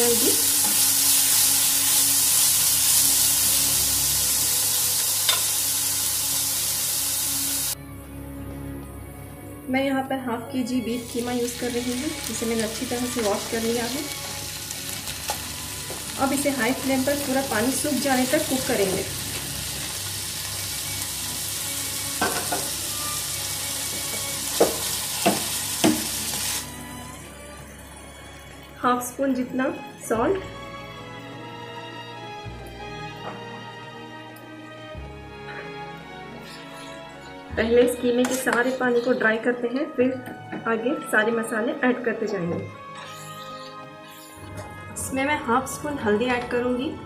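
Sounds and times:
food sizzling in oil: 0:00.0 - 0:07.8, 0:11.0 - 0:27.0.

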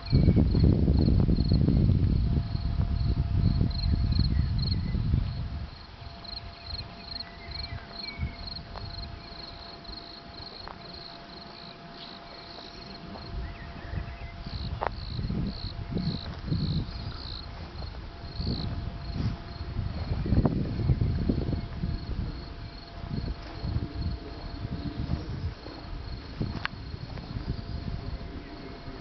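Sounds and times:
crickets chirping: 0:00.0 - 0:29.0
low rumble: 0:00.0 - 0:29.0.

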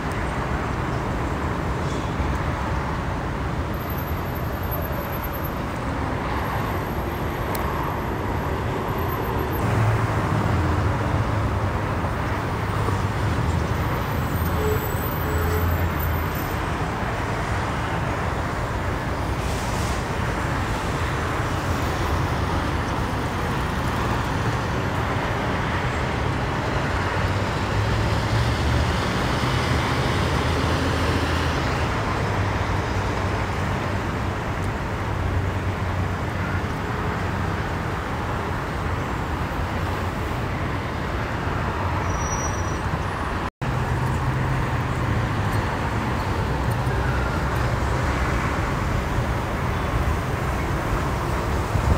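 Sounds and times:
freeway traffic roar: 0:00.0 - 0:51.9.

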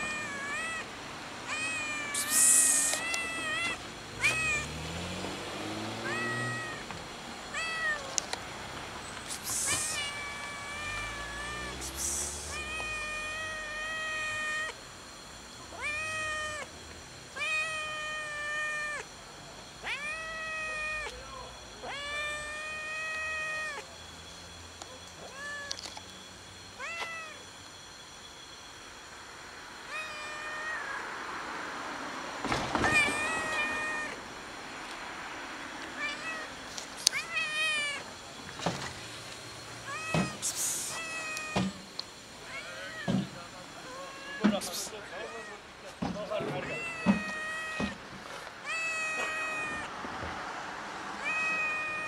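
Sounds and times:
cat meowing: 0:00.0 - 0:04.8, 0:06.0 - 0:06.9, 0:07.5 - 0:08.2, 0:09.4 - 0:14.8, 0:15.7 - 0:16.7, 0:17.3 - 0:19.2, 0:19.8 - 0:21.2, 0:21.8 - 0:23.9, 0:25.2 - 0:25.8, 0:26.8 - 0:27.4, 0:29.9 - 0:31.0, 0:32.8 - 0:34.2, 0:36.0 - 0:38.1, 0:39.8 - 0:41.8, 0:42.4 - 0:45.6, 0:46.4 - 0:48.0, 0:48.6 - 0:49.9, 0:51.2 - 0:52.0
loud hiss burst: 0:01.2 - 0:04.7, 0:09.2 - 0:13.0, 0:39.0 - 0:42.6.

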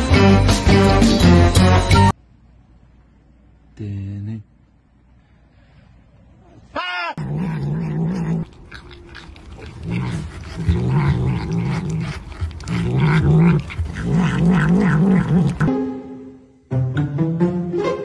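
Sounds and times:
cat growling: 0:07.2 - 0:15.7.

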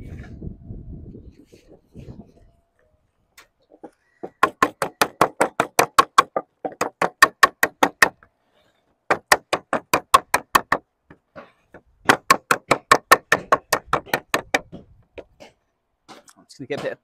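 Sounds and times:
tool striking sheet lead: 0:12.0 - 0:17.0.

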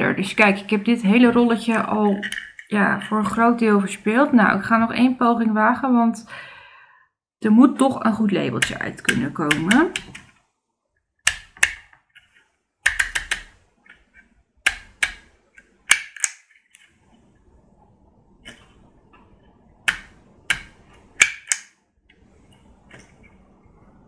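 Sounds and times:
label maker plastic clicks: 0:11.2 - 0:14.0.

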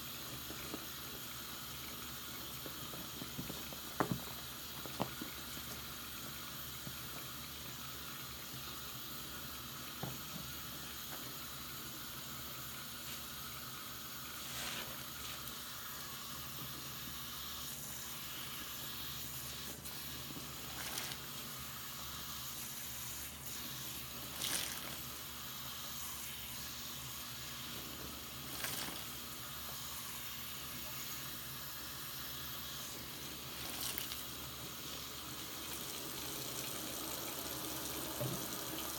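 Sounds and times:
tap water running into sink: 0:00.0 - 0:38.9
sponge squishing: 0:14.1 - 0:17.0, 0:17.6 - 0:35.9.

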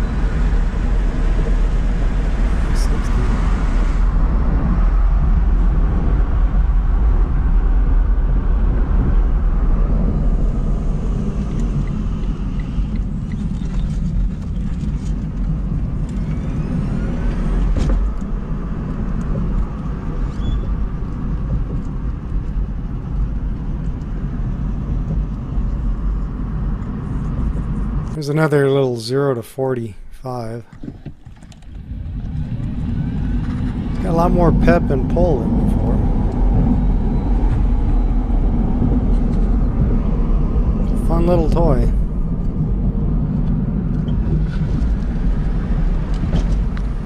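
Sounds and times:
wind noise: 0:00.0 - 0:28.4, 0:30.3 - 0:47.0
road rumble inside car: 0:00.0 - 0:28.9, 0:29.9 - 0:47.0.

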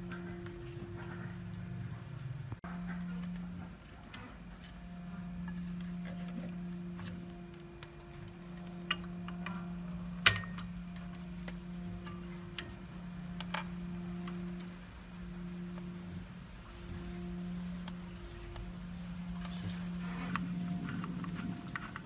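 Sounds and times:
steady low hum: 0:00.0 - 0:22.0
test probes tapping circuit board: 0:05.4 - 0:14.8.

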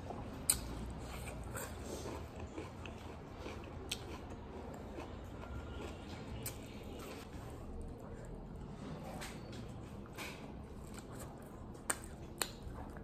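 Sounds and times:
close chewing: 0:00.0 - 0:08.7.

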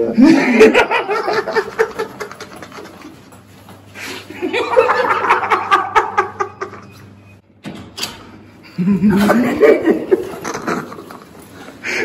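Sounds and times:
man laughing: 0:00.0 - 0:03.4, 0:04.3 - 0:06.9, 0:08.7 - 0:11.4
footsteps in slippers: 0:02.3 - 0:04.4.

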